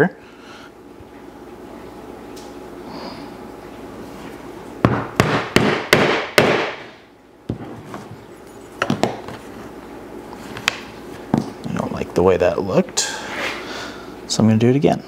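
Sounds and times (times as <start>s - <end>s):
mallet striking metal punch: 4.9s - 7.0s.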